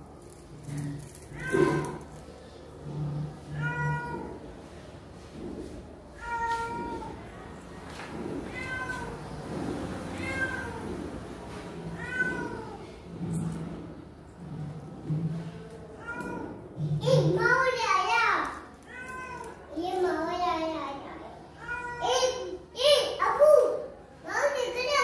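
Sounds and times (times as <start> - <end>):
cat meowing: 1.3 - 2.0, 3.5 - 4.3, 8.5 - 9.3, 10.1 - 10.9, 11.9 - 12.8.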